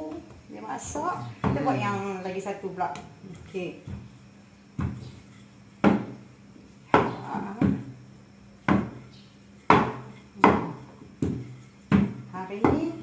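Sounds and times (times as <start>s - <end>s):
rolling pin knocking on wood: 4.8s - 5.2s, 5.8s - 6.2s, 8.7s - 9.1s, 9.7s - 13.0s.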